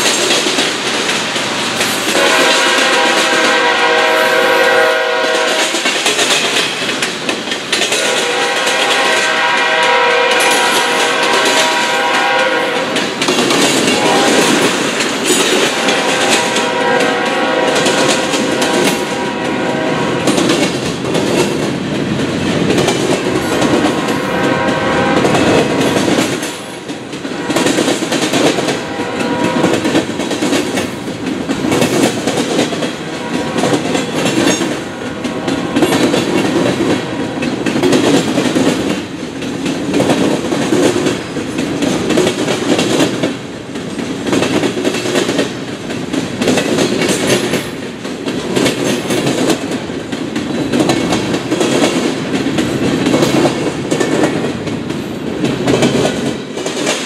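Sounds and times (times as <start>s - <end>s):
train wheels clattering: 0.0s - 57.0s
locomotive horn blasts: 2.2s - 5.7s, 8.0s - 13.0s, 13.9s - 14.6s, 15.7s - 20.3s, 23.6s - 26.0s, 28.7s - 29.8s, 33.1s - 33.9s, 34.8s - 36.1s, 36.9s - 37.5s.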